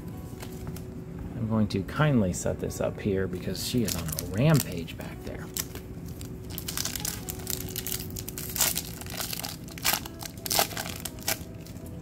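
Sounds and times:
foil wrapper crinkling and tearing: 3.6 - 11.9.

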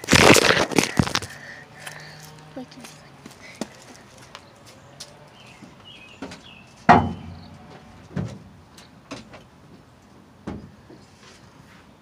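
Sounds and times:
knocks and thumps: 6.2 - 7.4.

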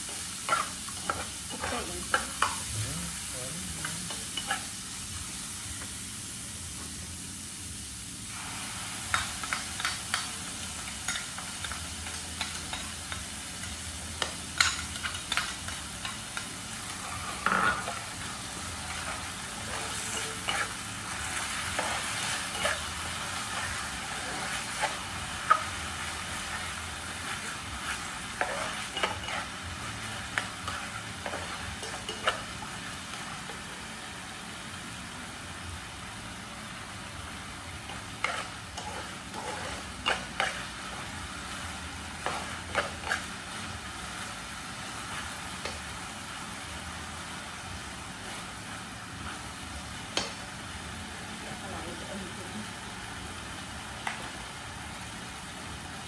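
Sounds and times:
food sizzling in a frying pan: 0.0 - 56.0
spatula scraping and tapping pan: 38.2 - 40.7, 42.2 - 43.3.

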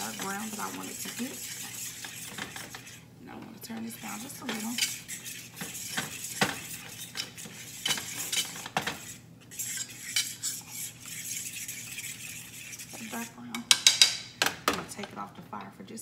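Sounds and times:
metal utensil scraping a skillet: 0.0 - 14.2
utensil tapping a pan: 13.5 - 15.2.

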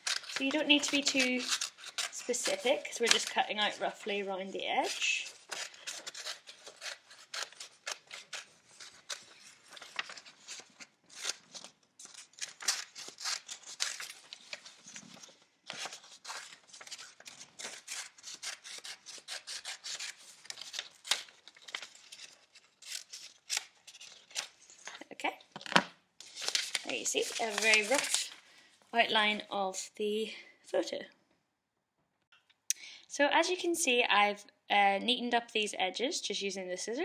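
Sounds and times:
scissors snipping paper: 0.0 - 3.8, 4.8 - 14.8, 15.7 - 24.5, 26.5 - 28.3
paper rustling: 0.0 - 25.1, 25.7 - 28.4.

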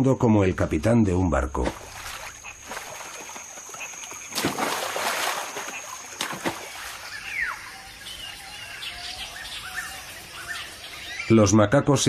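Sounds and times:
splash into water: 1.6 - 7.5
water churning: 1.6 - 7.6.

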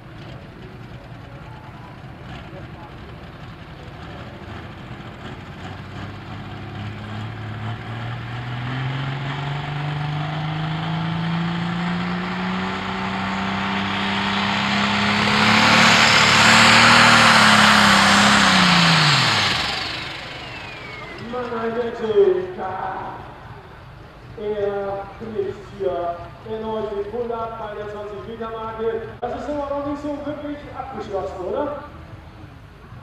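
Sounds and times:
diesel tractor engine revving: 0.0 - 24.4.

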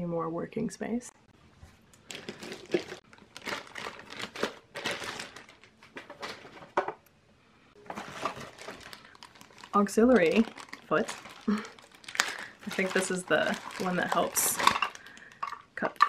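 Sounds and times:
plastic against foam and cardboard: 7.8 - 15.6.

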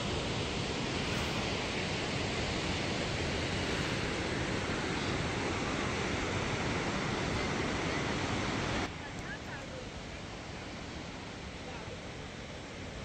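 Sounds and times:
wind buffeting microphone: 0.0 - 9.7.

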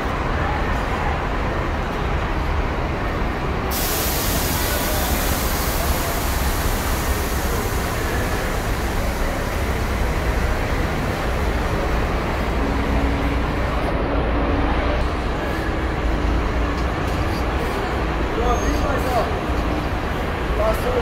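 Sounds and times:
bus engines rumbling: 0.0 - 21.0
air hiss: 3.7 - 11.8.

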